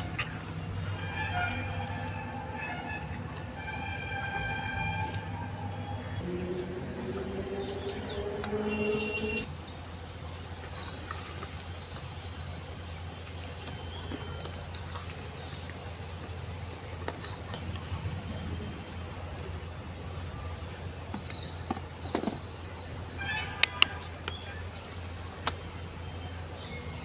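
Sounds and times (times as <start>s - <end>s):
birds chirping: 0.0s - 27.0s
background music with held notes: 0.9s - 9.5s.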